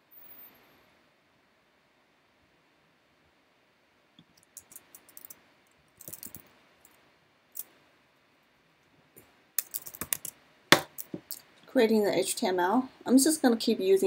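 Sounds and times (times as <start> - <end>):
typing on computer keyboard: 9.6 - 10.3.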